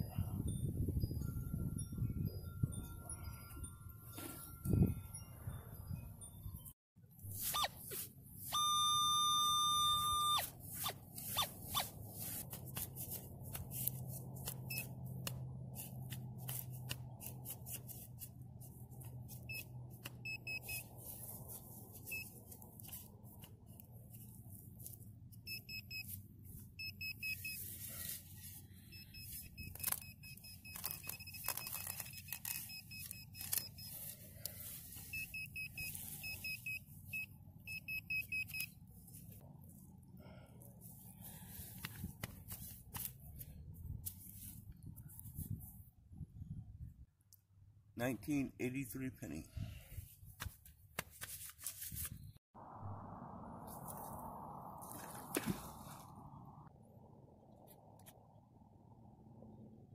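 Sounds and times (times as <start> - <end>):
digging knife scraping turf: 7.3 - 8.5, 10.2 - 25.0, 27.2 - 30.1, 30.7 - 36.8, 40.8 - 45.7
metal detector target tone: 7.3 - 10.5, 19.5 - 20.9
pinpointer rapid high beeps: 8.5 - 10.5.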